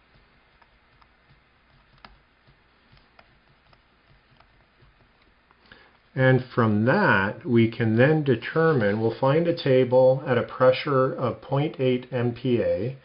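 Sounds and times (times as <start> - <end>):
stylus tapping on a tablet: 0.0 - 6.0.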